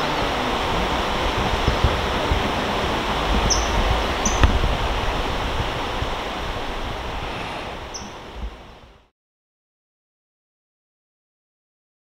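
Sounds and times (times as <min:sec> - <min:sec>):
stream running over rocks: 0:00.0 - 0:09.1
kingfisher calls: 0:01.6 - 0:04.6, 0:07.2 - 0:08.2.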